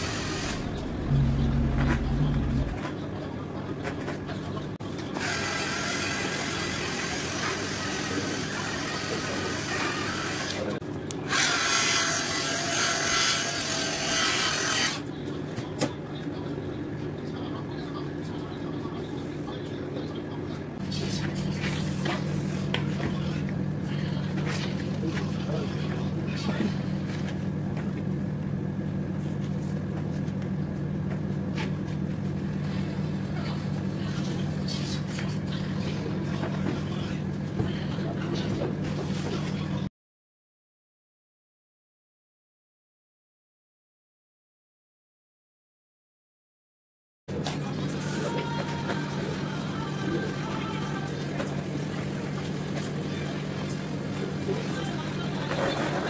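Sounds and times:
electric polisher whirring: 0.0 - 2.6
machine humming: 0.0 - 2.9.

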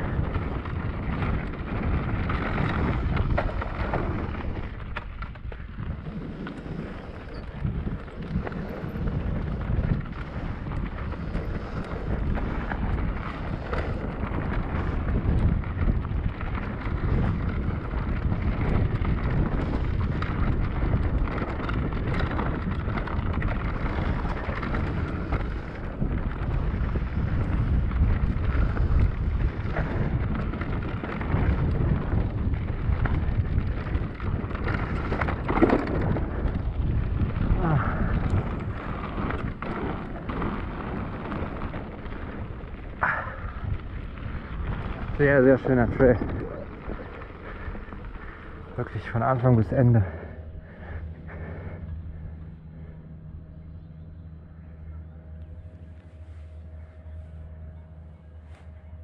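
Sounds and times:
mountain bike rattling on trail: 0.0 - 59.0
wind rumbling on microphone: 0.0 - 59.0.

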